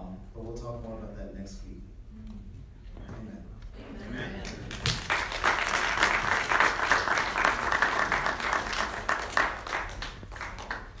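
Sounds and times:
congregation applauding: 4.4 - 11.0.

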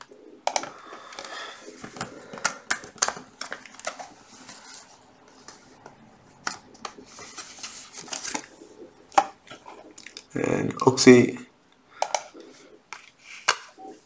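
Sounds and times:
keyboard and mouse clicks: 0.0 - 1.3, 12.0 - 12.5.

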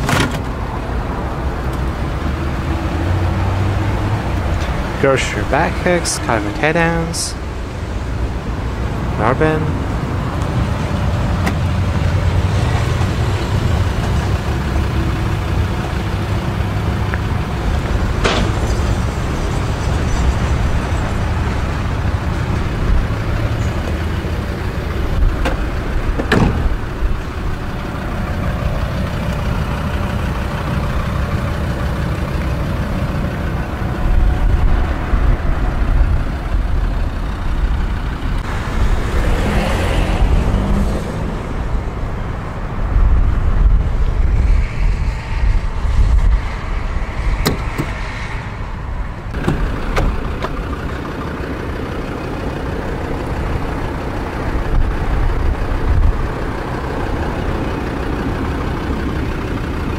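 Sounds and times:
vehicle rumble: 0.0 - 59.9.

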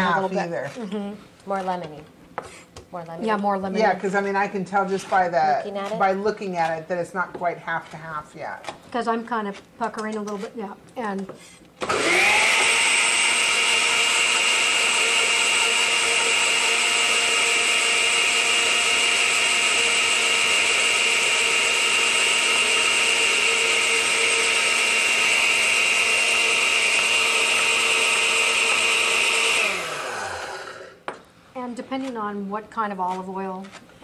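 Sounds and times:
blender motor running: 11.8 - 31.0.

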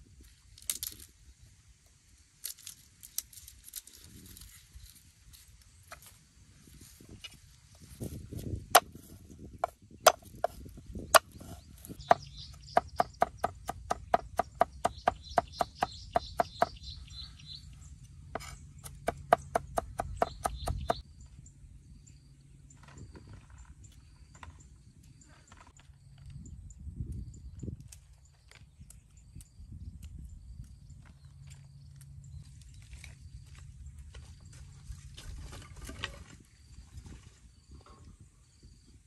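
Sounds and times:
cleaver chopping on wooden board: 8.8 - 9.0, 12.0 - 16.8, 18.4 - 21.0.

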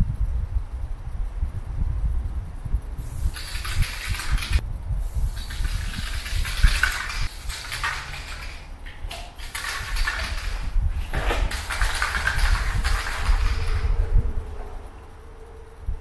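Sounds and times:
spray paint can hissing: 3.0 - 14.2
low rumble: 10.7 - 16.0.

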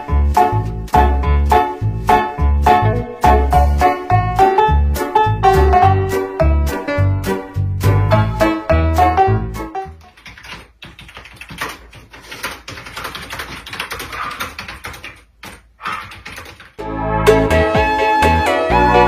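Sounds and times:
rapid clicking and tapping: 9.9 - 16.8
loud music: 16.8 - 19.0.

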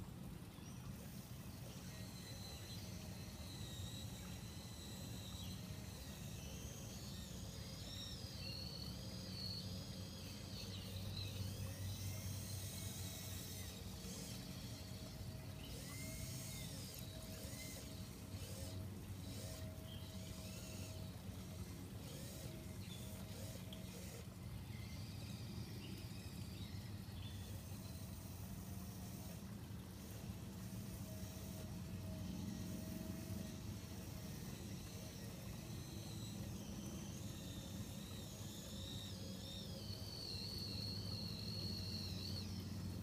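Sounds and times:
small electric motors whining: 0.0 - 43.0
thin steady whine: 0.0 - 43.0
birds singing: 0.4 - 28.4.

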